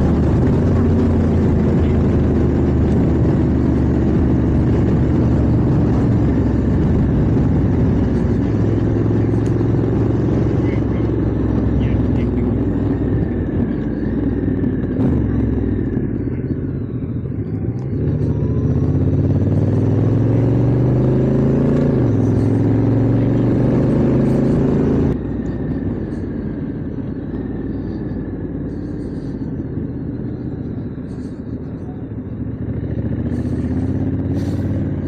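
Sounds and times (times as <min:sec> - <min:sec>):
motorcycle engine: 0:00.0 - 0:35.0.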